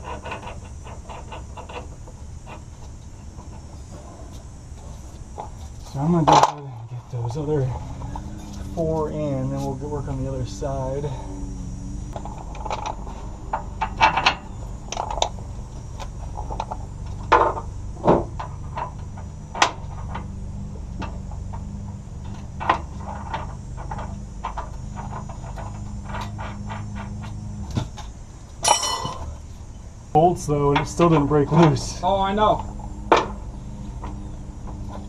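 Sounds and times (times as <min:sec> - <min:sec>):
steady low hum: 0:00.0 - 0:35.0
bolts clinking on metal: 0:22.2 - 0:29.4.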